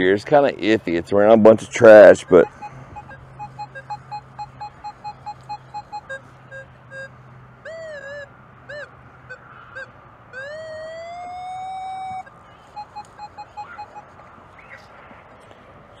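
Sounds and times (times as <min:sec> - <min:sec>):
metal detector beeps and tones: 0:01.8 - 0:14.2.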